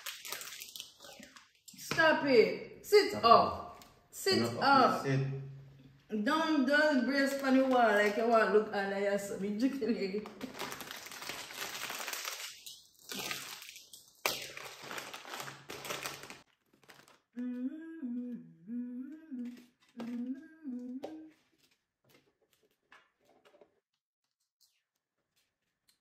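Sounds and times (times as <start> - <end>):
plastic snack packet crinkling: 0.0 - 1.7, 7.2 - 8.4, 10.2 - 17.4
person humming: 17.4 - 21.4.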